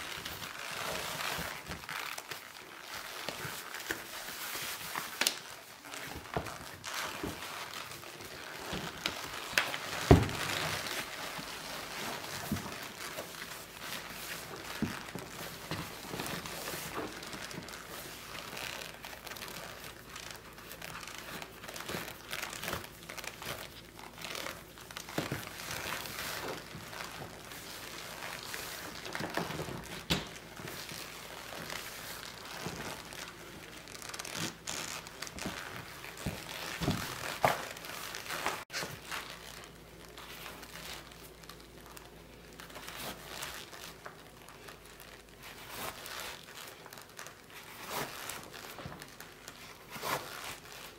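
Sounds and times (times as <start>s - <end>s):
leather boot creaking: 5.2s - 38.6s.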